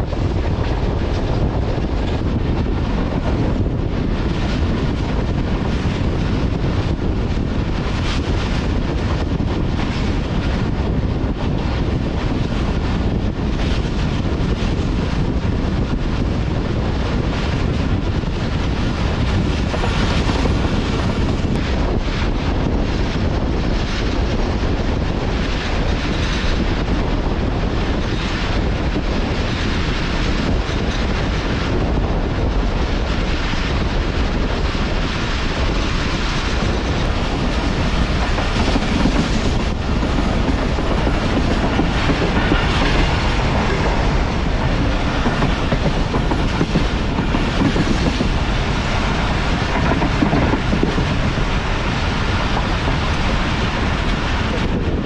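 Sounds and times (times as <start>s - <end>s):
train rumbling: 0.0s - 55.0s
train wheels clicking over rail joints: 24.9s - 55.0s.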